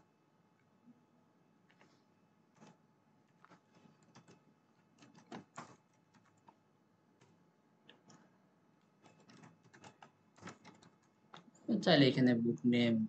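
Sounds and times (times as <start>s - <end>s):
keyboard typing clicks: 2.6s - 6.6s, 8.9s - 11.5s.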